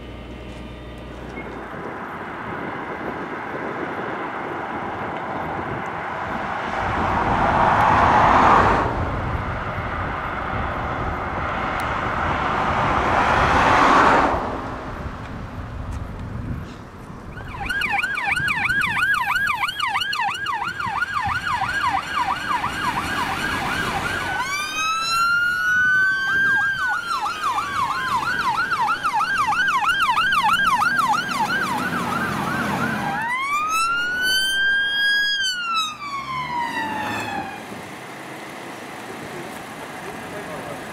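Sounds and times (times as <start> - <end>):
fire engines driving past: 0.0 - 40.9
siren fast yelp: 17.3 - 37.6
siren rising and falling wail: 17.3 - 37.8.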